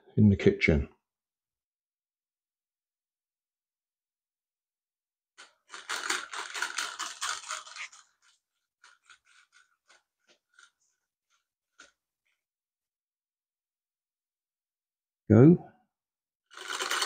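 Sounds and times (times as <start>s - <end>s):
toy car clicks: 5.4s - 12.0s, 16.5s - 17.0s.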